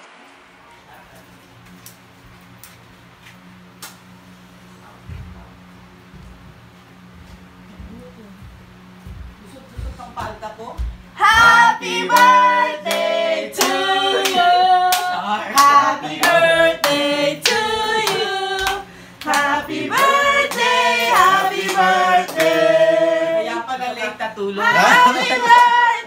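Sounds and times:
group singing a birthday song: 11.2 - 26.0
hand claps: 12.1 - 22.6.

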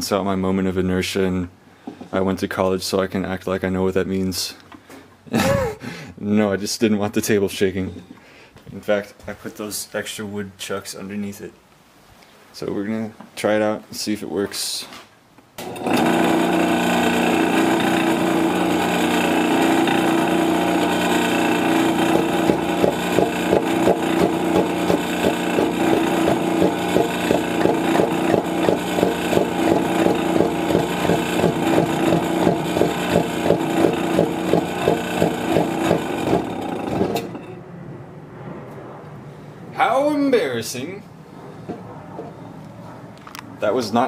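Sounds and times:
metal lathe humming: 15.6 - 37.4
spinning wood knocking on bolt: 21.0 - 37.3.

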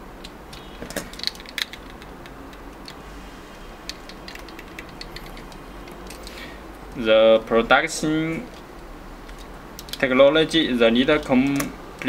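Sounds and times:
plastic parts clicking: 0.2 - 3.0, 3.9 - 7.0, 9.3 - 10.1, 11.4 - 11.7.

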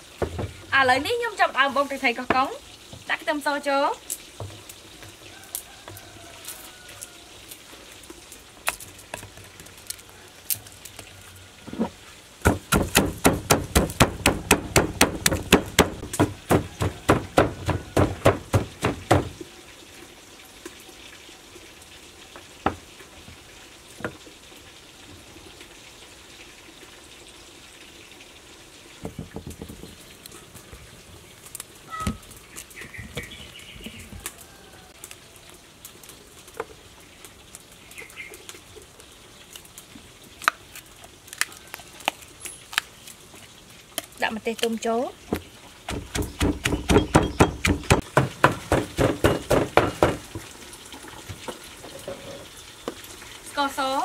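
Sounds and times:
pestle pounding in a mortar: 12.4 - 19.4, 45.9 - 50.5.

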